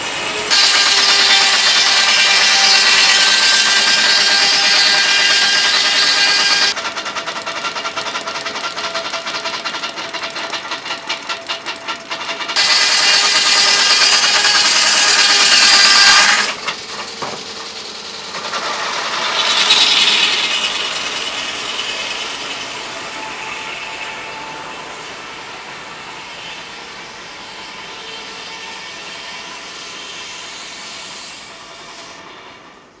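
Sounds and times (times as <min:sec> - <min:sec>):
saw blade cutting through log: 0:00.4 - 0:17.2, 0:18.2 - 0:24.2
fast mechanical rattle: 0:00.6 - 0:22.7.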